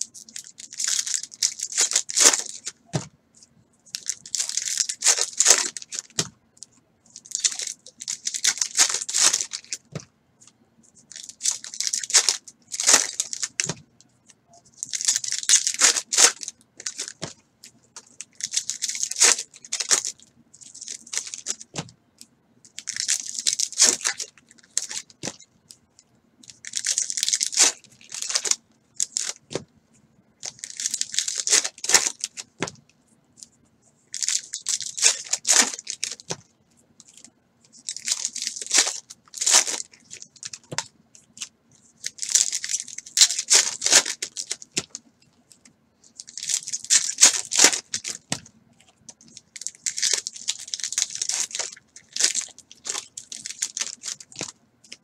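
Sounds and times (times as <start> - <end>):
foil wrappers tearing and crinkling: 0.1 - 2.8, 3.9 - 6.2, 7.2 - 9.8, 11.1 - 13.8, 14.8 - 17.3, 18.2 - 21.8, 22.8 - 25.4, 26.5 - 29.6, 30.4 - 32.7, 34.2 - 36.4, 37.8 - 40.8, 42.0 - 45.0, 46.2 - 48.4, 49.3 - 55.0.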